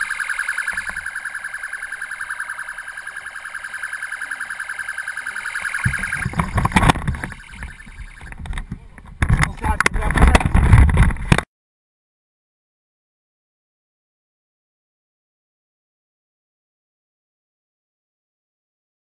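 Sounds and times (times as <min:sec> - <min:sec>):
pulsing electronic siren: 0:00.0 - 0:08.6.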